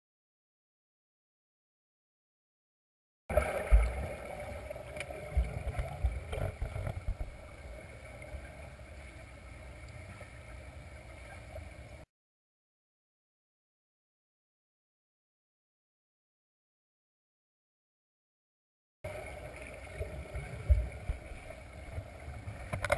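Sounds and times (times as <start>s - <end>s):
muffled underwater rumble: 3.3s - 12.0s, 19.1s - 22.9s.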